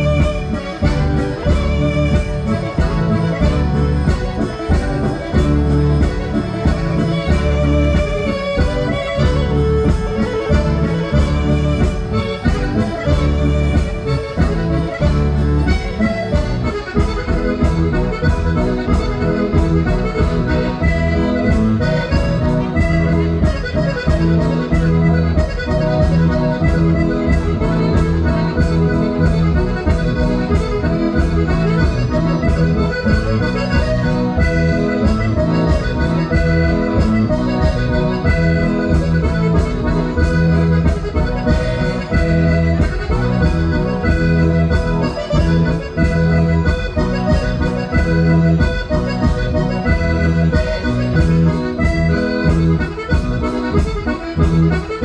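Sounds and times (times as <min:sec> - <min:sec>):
accordion dance music: 0:00.0 - 0:55.0.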